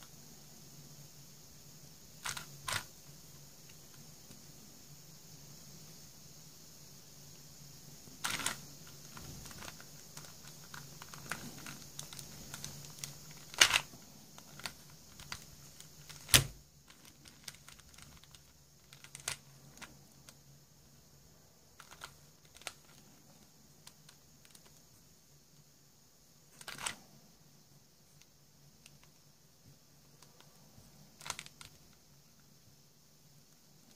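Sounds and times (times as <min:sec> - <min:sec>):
faint steady hum: 0:00.0 - 0:33.9
plastic puzzle clicking: 0:02.2 - 0:02.9, 0:08.2 - 0:19.9, 0:21.8 - 0:23.0, 0:26.6 - 0:27.0, 0:31.2 - 0:32.0.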